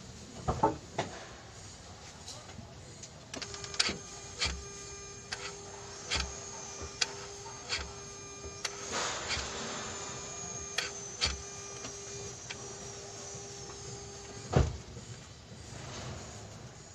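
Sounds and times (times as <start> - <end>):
electric motor whine: 3.3 - 16.9.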